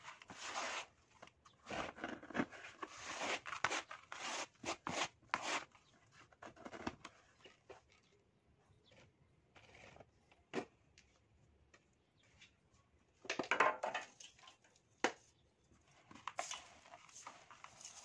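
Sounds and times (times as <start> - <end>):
soil sifting through a sieve: 0.0 - 1.0, 1.6 - 5.8, 16.3 - 18.0
dry soil crackling in a plastic tub: 15.8 - 18.0.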